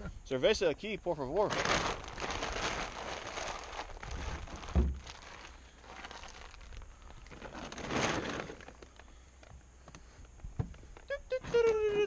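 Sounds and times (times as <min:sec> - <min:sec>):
rustling and handling noises: 0:01.4 - 0:11.9
heavy thud: 0:04.6 - 0:05.0.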